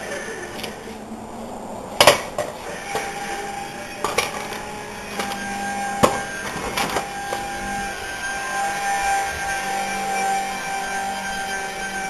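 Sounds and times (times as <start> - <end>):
hard objects clacking and knocking: 4.0 - 5.4.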